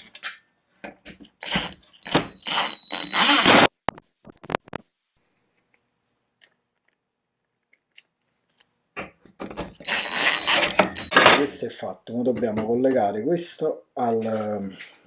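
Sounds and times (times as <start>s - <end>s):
cordless drill motor whining: 1.4s - 3.7s, 9.8s - 11.1s.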